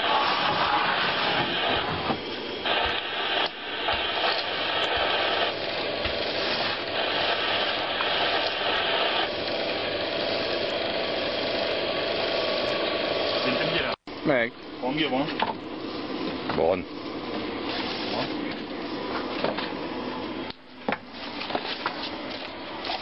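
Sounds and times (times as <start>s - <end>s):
machine engine running: 0.0s - 20.5s.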